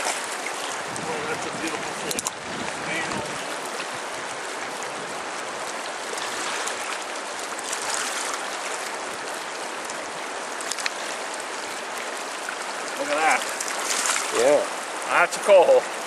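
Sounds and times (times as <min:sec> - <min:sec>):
river rushing over rocks: 0:00.0 - 0:16.0.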